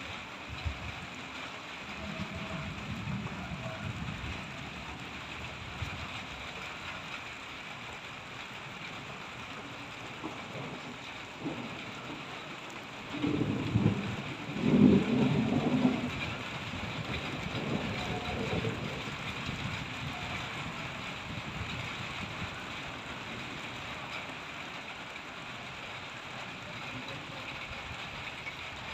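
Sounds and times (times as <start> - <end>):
steady rain hiss: 0.0 - 28.9
roll of thunder: 2.0 - 6.1, 10.5 - 23.5.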